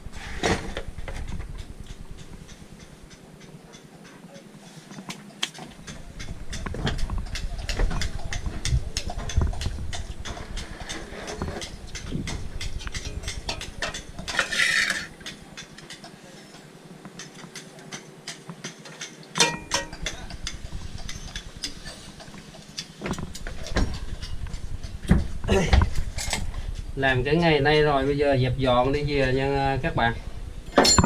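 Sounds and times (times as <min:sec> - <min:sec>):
metallic clank: 0:10.8 - 0:15.4, 0:19.4 - 0:20.4, 0:30.7 - 0:31.0
metal tools clinking: 0:12.9 - 0:15.3, 0:30.7 - 0:31.0.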